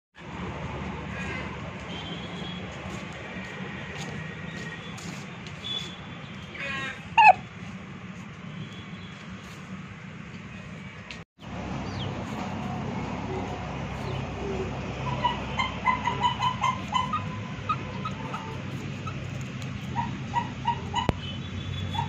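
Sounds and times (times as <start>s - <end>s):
chicken squawking: 6.6s - 7.4s, 12.6s - 21.2s.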